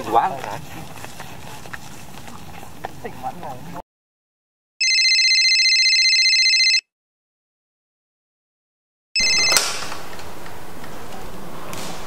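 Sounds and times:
telephone trilling ring: 4.8 - 6.8, 9.2 - 9.8.

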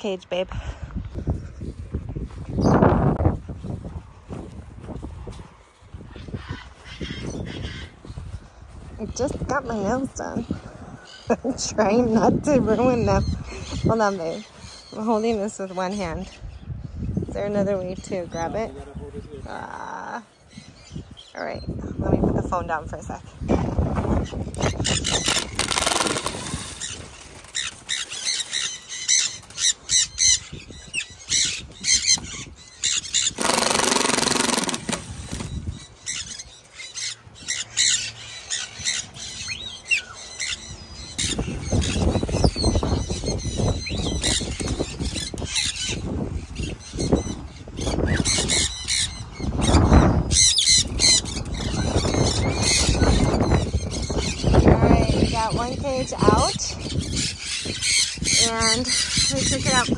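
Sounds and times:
parrots squawking: 6.0 - 8.2, 24.2 - 59.9.

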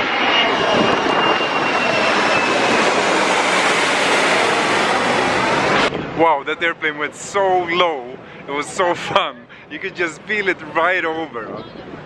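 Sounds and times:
high whine falling in pitch: 0.0 - 6.5
airplane roar overhead: 0.0 - 12.0.

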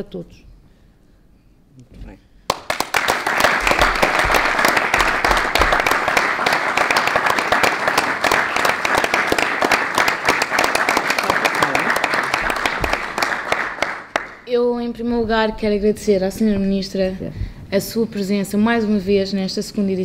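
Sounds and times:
audience applauding: 2.5 - 14.5.

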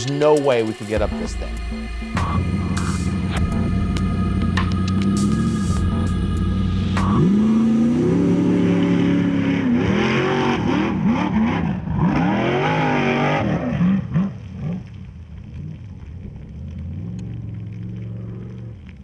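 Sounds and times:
buggy engine revving: 0.9 - 15.0.

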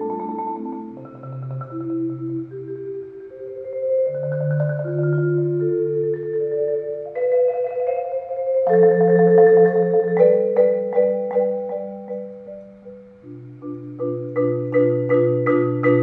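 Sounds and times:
marimba and vibraphone chords: 0.0 - 16.0
struck mallet notes ringing: 3.8 - 16.0.

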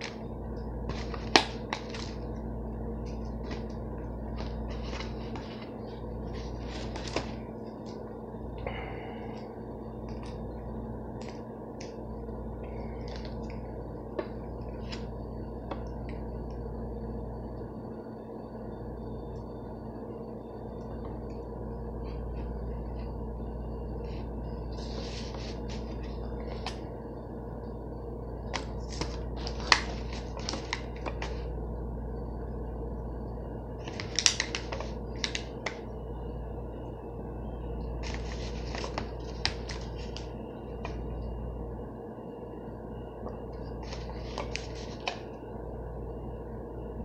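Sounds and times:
low hum: 0.0 - 47.0
plastic packaging crinkling: 28.5 - 31.4, 33.8 - 35.8.

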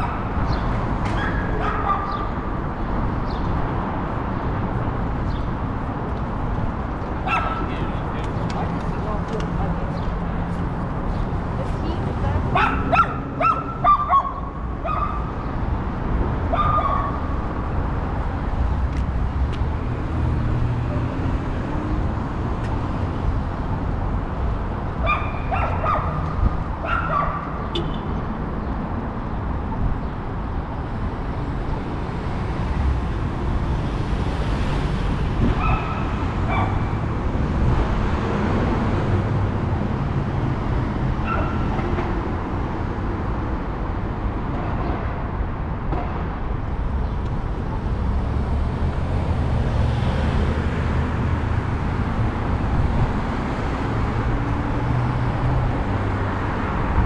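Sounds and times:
street traffic rumble: 0.0 - 57.0
car passing: 47.5 - 57.0.

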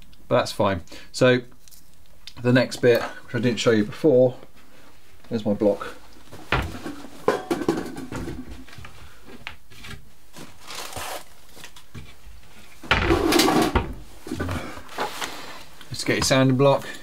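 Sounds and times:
rustling and scraping: 3.1 - 16.4
objects knocking: 6.4 - 8.7, 12.8 - 14.6.

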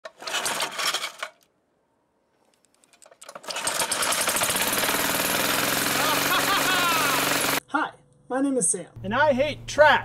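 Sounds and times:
small engine running: 3.3 - 7.6.

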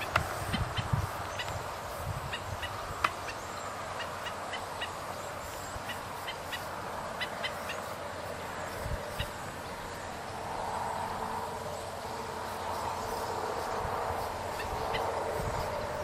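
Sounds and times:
background hiss: 0.0 - 16.0
bird yipping calls: 14.5 - 15.2.

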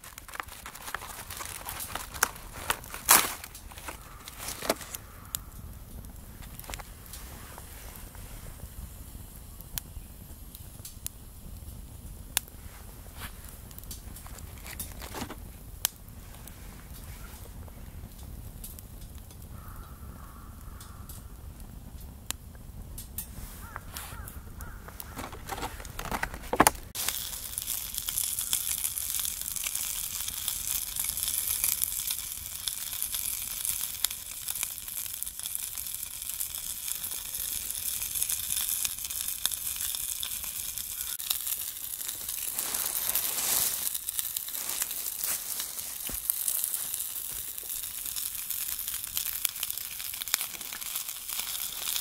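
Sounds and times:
food sizzling: 0.0 - 5.2, 26.8 - 52.0
wood fire crackling: 0.0 - 52.0
handling knocks: 25.0 - 26.9.

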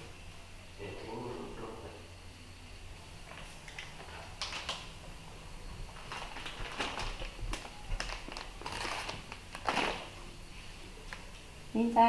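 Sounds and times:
plastic snack packet crinkling: 3.7 - 4.9, 5.9 - 10.2.

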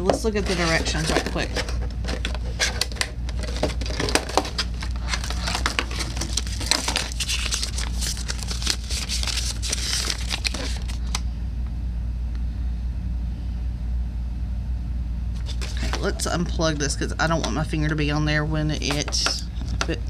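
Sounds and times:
paper rustling and crinkling: 0.0 - 11.2, 15.4 - 16.3
steady low hum: 0.0 - 20.0.

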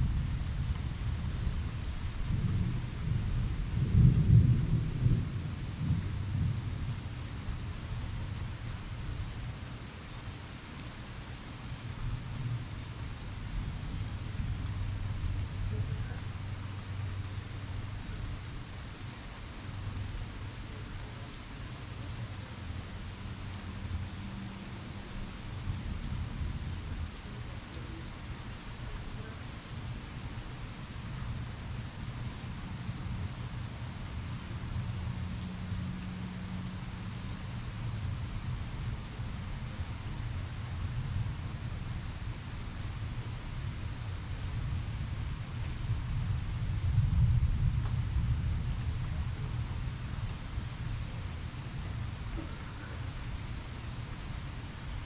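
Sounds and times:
insects chirping: 5.8 - 55.0.

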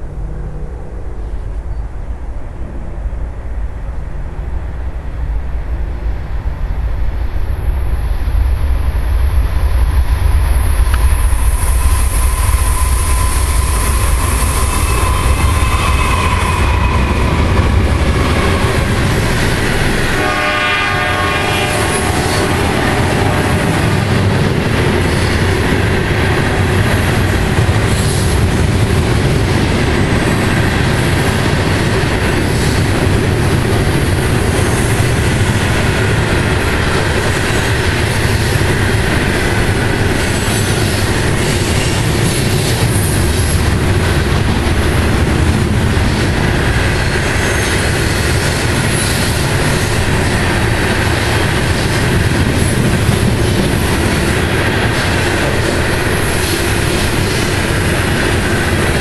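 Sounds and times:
diesel locomotive engine rumble: 0.0 - 59.0
rail cars clattering: 0.0 - 59.0.

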